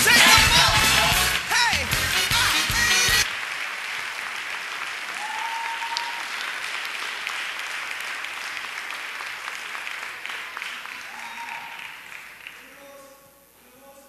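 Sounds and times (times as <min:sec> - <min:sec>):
backing music with singing: 0:00.0 - 0:03.2
congregation applauding: 0:00.0 - 0:13.0.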